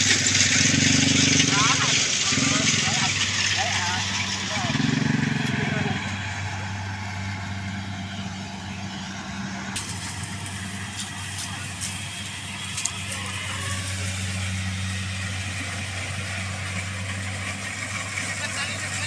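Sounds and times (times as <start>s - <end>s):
engine humming steadily: 0.0s - 19.0s.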